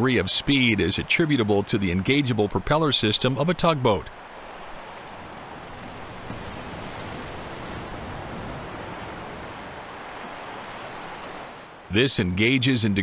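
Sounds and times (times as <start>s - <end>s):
sea water washing: 0.0s - 11.9s
wind noise: 4.2s - 11.9s.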